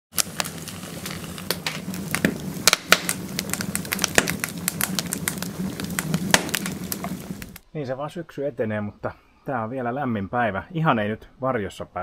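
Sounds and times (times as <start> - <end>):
fire crackling: 0.1 - 7.6.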